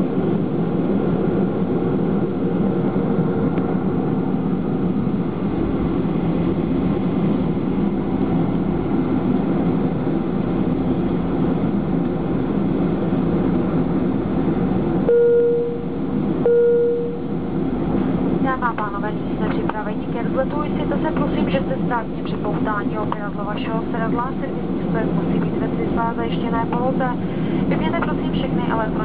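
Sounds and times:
airplane cabin engine noise: 0.0s - 29.0s
short single-pitch tones: 15.1s - 17.3s.

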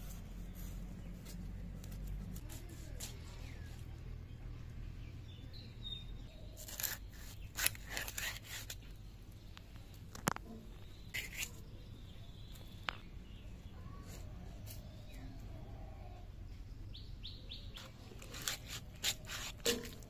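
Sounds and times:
blade scraping fish scales: 6.6s - 8.9s, 11.1s - 11.7s, 17.8s - 20.0s.

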